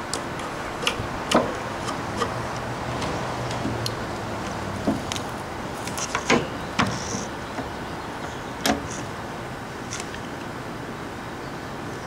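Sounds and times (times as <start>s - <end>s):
tools and wood knocking: 0.1s - 5.2s.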